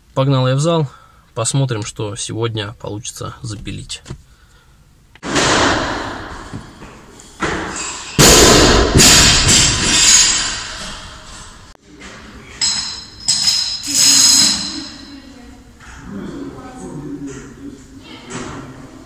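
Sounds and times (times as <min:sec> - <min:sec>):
heavy echoing thuds: 0:05.2 - 0:09.9.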